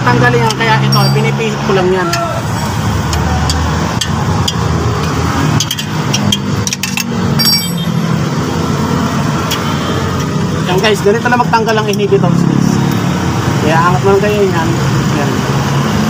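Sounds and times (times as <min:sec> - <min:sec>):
metal tools clinking on bolts: 0:00.8 - 0:01.4, 0:05.5 - 0:08.1.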